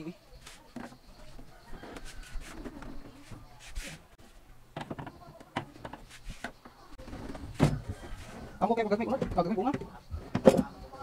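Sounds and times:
clicks and knocks from television cabinet: 0:04.8 - 0:06.1.

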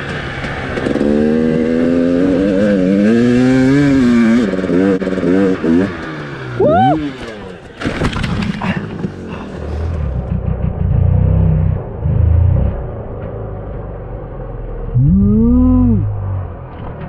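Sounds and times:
two-stroke engine revving: 0:00.3 - 0:07.6.

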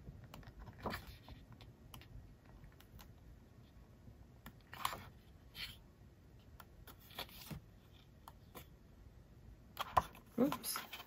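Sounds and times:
pages turning: 0:06.9 - 0:08.7.

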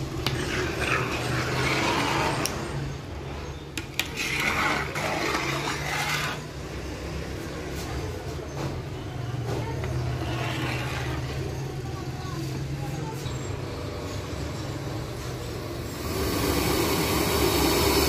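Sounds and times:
dough sizzling in hot oil: 0:15.9 - 0:18.0.

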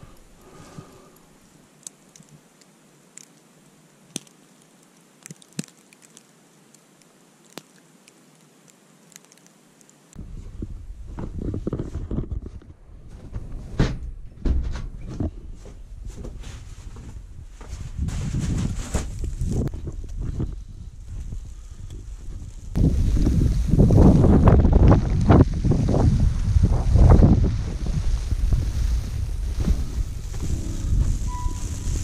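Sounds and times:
faint hiss: 0:00.0 - 0:10.2, 0:21.3 - 0:32.0
rumbling handling noise: 0:10.2 - 0:23.4
knocks and footsteps: 0:10.5 - 0:20.6, 0:29.4 - 0:32.0.

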